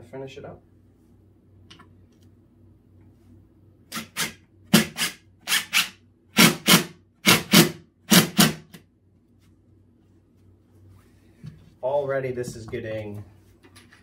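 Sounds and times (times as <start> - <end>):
impact driver driving screw into wood: 3.9 - 8.8.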